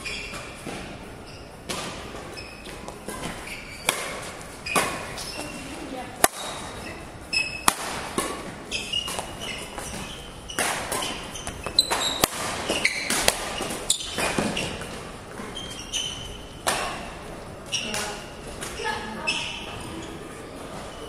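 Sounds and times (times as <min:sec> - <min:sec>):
shoes squeaking on court: 0:00.0 - 0:21.0
racket striking shuttlecock: 0:02.7 - 0:05.2, 0:06.2 - 0:06.8, 0:07.4 - 0:14.9, 0:16.6 - 0:17.1.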